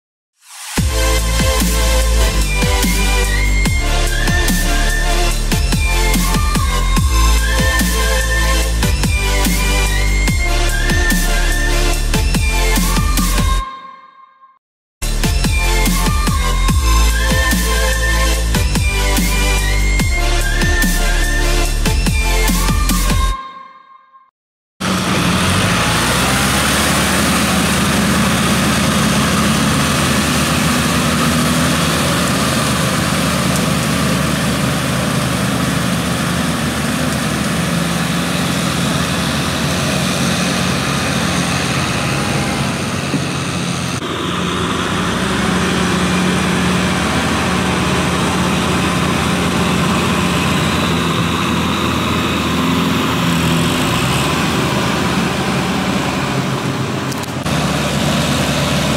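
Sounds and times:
tractor engines running: 0.8s - 13.6s, 24.8s - 58.9s.

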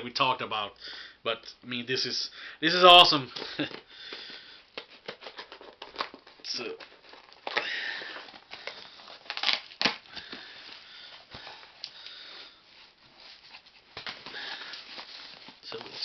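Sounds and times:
tape ripping and crinkling: 3.4s - 12.0s.

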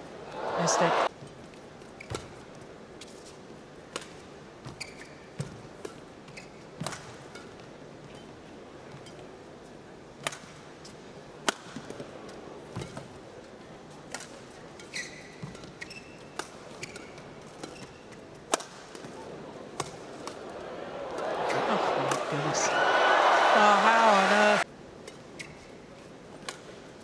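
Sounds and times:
shoes squeaking on court: 1.2s - 3.4s, 4.6s - 7.3s, 14.8s - 18.4s, 25.1s - 25.8s
rackets hitting shuttlecock: 21.1s - 22.3s.

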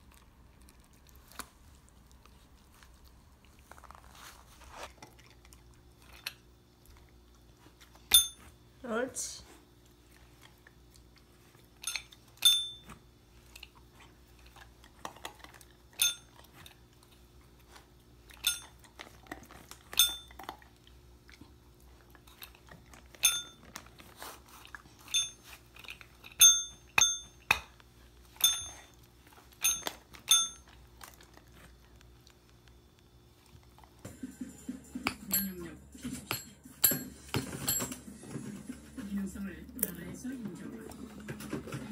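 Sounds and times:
puppy chewing treats: 0.0s - 8.1s, 9.6s - 12.4s, 13.0s - 27.0s, 27.7s - 34.2s
tap bell dings: 36.3s - 38.0s.

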